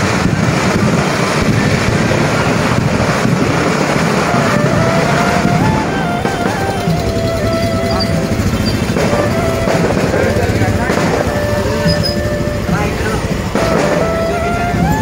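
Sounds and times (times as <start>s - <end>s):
motorcycles and scooters passing: 0.0s - 15.0s
thin melody: 4.1s - 15.0s.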